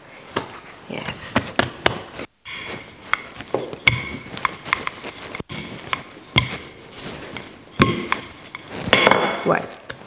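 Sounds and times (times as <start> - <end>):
rolling pin rolling pastry: 1.4 - 10.0
knocks and taps: 3.1 - 6.7.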